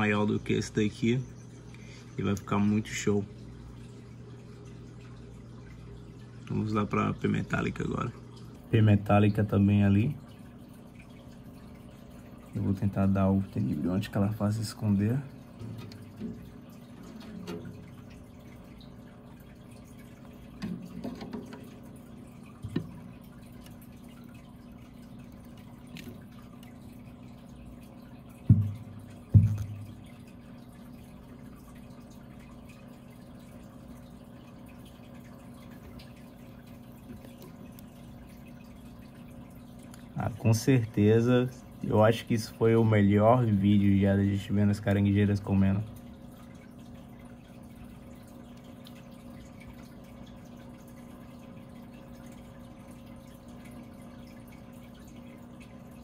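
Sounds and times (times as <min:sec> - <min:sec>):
faint dripping water: 0:00.0 - 0:56.0
steady low hum: 0:00.0 - 0:56.0
dull low knocks: 0:28.4 - 0:29.9.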